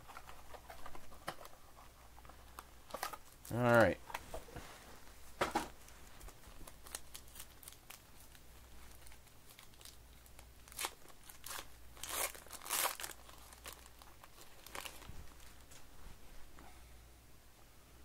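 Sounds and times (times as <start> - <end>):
foil wrapper crinkling and tearing: 6.2 - 15.7.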